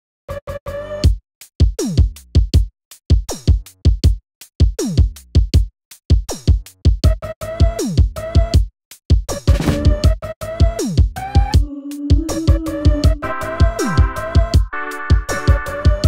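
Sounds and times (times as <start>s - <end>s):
electronic music with drum-machine beat: 7.0s - 8.6s, 9.3s - 11.6s, 12.2s - 16.0s.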